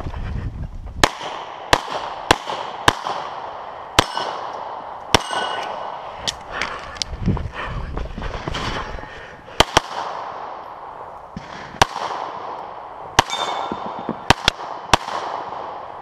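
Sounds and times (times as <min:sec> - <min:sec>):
pistol shots: 0:01.0 - 0:06.1, 0:09.6 - 0:10.6, 0:11.4 - 0:16.0
metallic ring: 0:05.2 - 0:05.7, 0:13.3 - 0:14.0.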